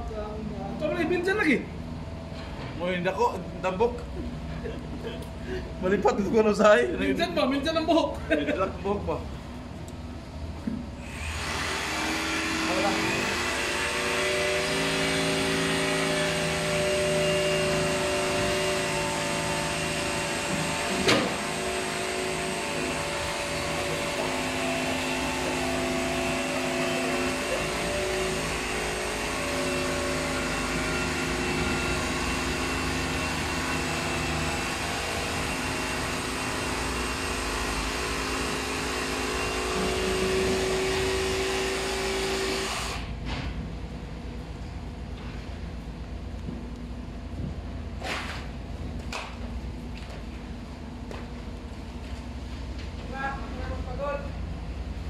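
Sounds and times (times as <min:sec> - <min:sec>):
dust extraction vacuum droning: 0:11.0 - 0:43.1.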